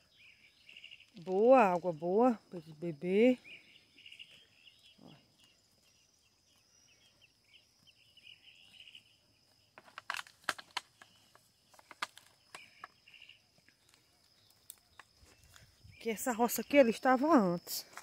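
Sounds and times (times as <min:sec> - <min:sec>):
insects chirping in bursts: 0:00.0 - 0:18.0
sharp snaps and cracks: 0:09.8 - 0:13.0, 0:13.8 - 0:15.2.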